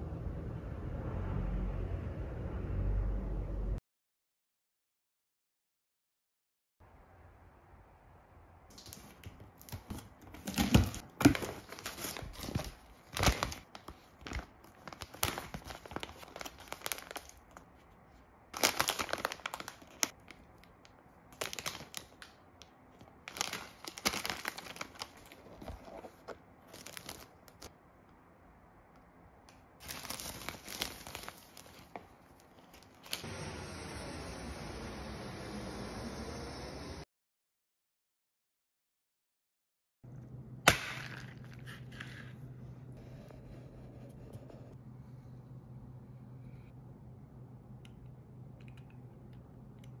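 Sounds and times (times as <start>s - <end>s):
plastic packaging crinkling: 8.7s - 17.8s, 18.6s - 27.7s, 29.8s - 33.2s.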